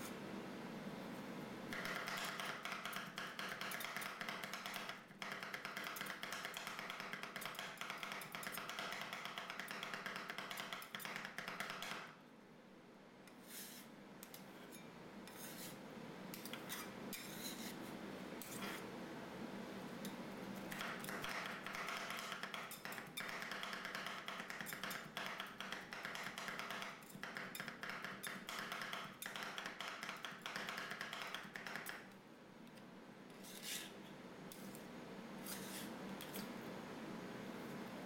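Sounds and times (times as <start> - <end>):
metal spatulas chopping and scraping: 1.7 - 12.1, 13.3 - 17.8, 18.4 - 18.8, 20.0 - 32.0, 33.3 - 33.9, 35.4 - 36.5.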